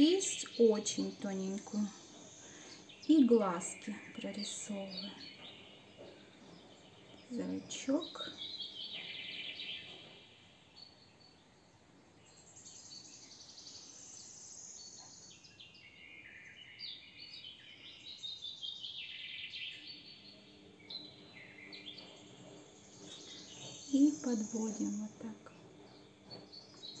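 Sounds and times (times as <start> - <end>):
small bird trilled chirping: 12.2 - 27.0.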